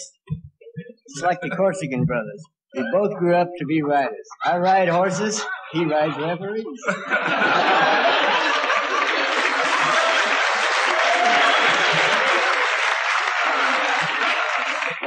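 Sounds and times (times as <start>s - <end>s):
audience laughing: 5.2s - 15.0s
audience applauding: 7.4s - 15.0s.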